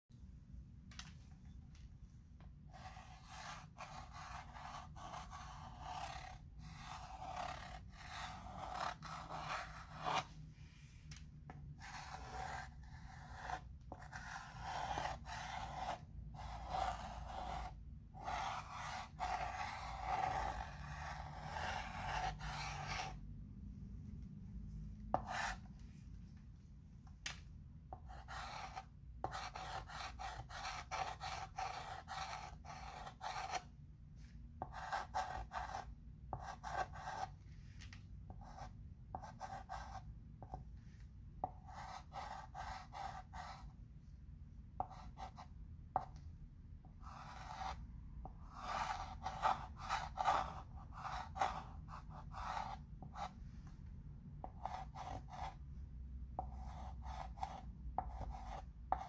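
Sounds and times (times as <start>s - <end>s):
chalk scratching on chalkboard: 2.7s - 23.2s, 25.1s - 26.0s, 27.9s - 43.7s, 44.8s - 46.1s, 47.0s - 53.6s, 54.4s - 55.6s, 56.4s - 59.0s.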